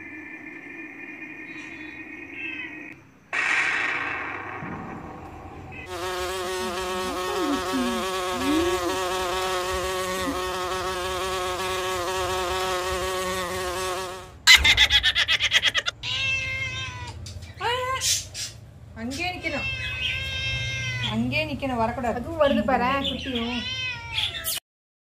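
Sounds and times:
insect buzzing: 0:05.5 - 0:14.4
cat meowing: 0:16.0 - 0:17.2, 0:19.2 - 0:21.3, 0:23.2 - 0:24.6.

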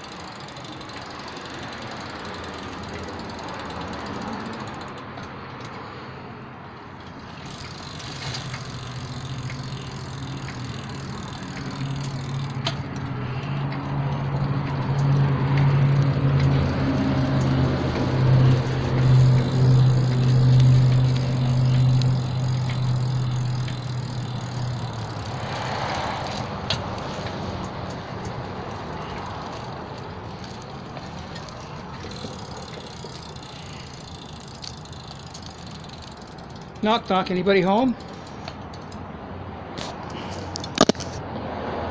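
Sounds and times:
heavy vehicle engine drone passing: 0:07.4 - 0:37.0.

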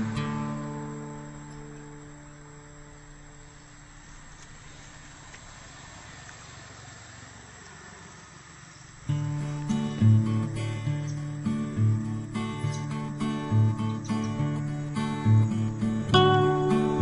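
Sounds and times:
guitar music: 0:00.0 - 0:04.1, 0:09.1 - 0:17.0.

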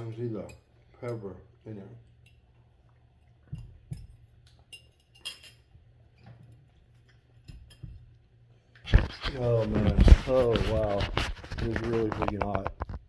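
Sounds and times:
bowl clinking: 0:03.4 - 0:06.2.

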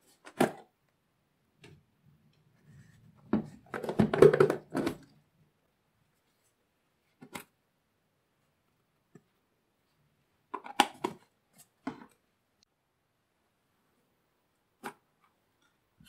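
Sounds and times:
plastic containers clicking and knocking: 0:03.2 - 0:05.2, 0:10.5 - 0:12.2.

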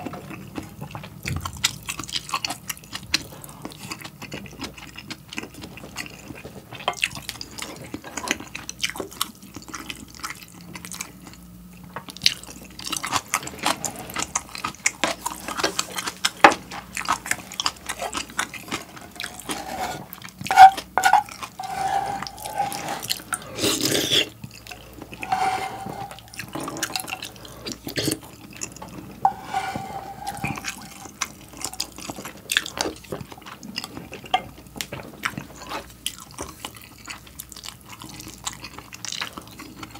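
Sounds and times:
person slurping soup: 0:18.7 - 0:28.2, 0:29.2 - 0:31.2.

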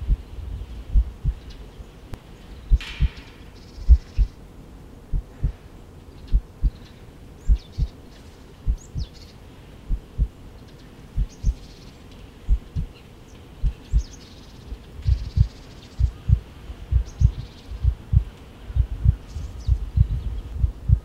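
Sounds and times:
slow heartbeat thumps: 0:00.0 - 0:00.2, 0:00.9 - 0:01.4, 0:03.9 - 0:04.3, 0:05.1 - 0:05.6, 0:07.5 - 0:07.9, 0:08.7 - 0:09.1, 0:09.9 - 0:10.4, 0:11.2 - 0:11.6, 0:12.5 - 0:12.9, 0:13.6 - 0:14.1, 0:15.0 - 0:21.0
faint bird chirps: 0:02.4 - 0:04.4, 0:05.2 - 0:21.0.

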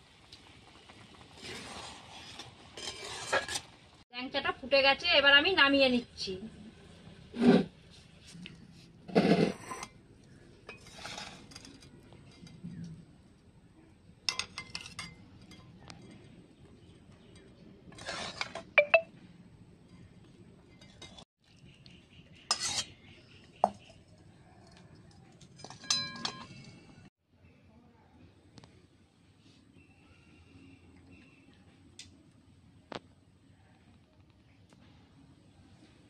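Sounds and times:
metal spatula clinking on pan and bowl: 0:22.5 - 0:22.9, 0:25.6 - 0:26.6.

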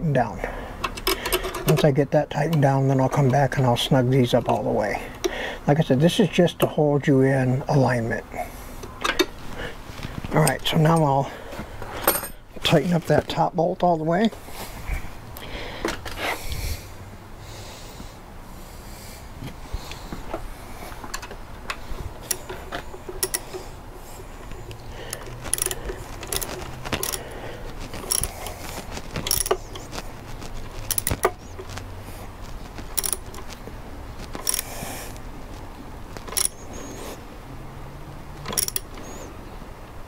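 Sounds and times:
wrench clicking on bolt: 0:00.8 - 0:01.9, 0:21.1 - 0:23.6, 0:25.1 - 0:27.2, 0:28.0 - 0:28.6, 0:29.3 - 0:29.6, 0:30.9 - 0:31.4, 0:33.0 - 0:33.4, 0:34.4 - 0:34.7, 0:36.3 - 0:36.6, 0:38.5 - 0:39.1.

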